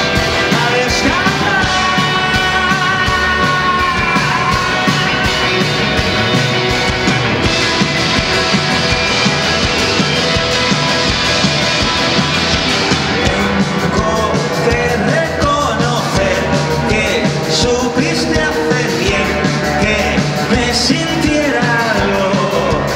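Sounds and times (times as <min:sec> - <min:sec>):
person singing: 0:00.0 - 0:06.4, 0:12.8 - 0:22.9
live rock band playing: 0:00.0 - 0:22.9.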